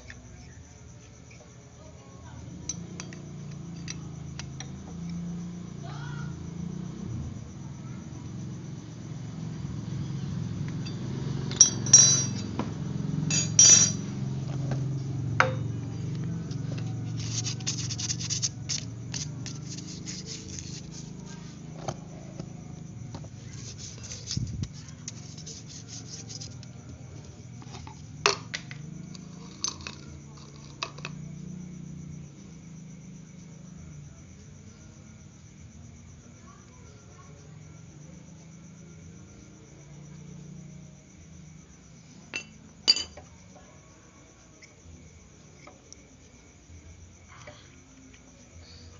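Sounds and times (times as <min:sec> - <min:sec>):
metal clinks and scrapes: 0:10.8 - 0:12.6, 0:13.3 - 0:14.1, 0:16.5 - 0:21.9, 0:23.5 - 0:26.7.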